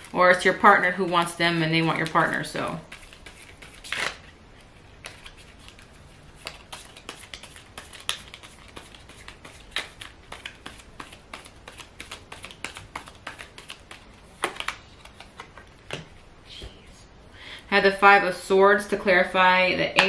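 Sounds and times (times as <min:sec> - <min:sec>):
cards being shuffled: 0:00.8 - 0:16.2.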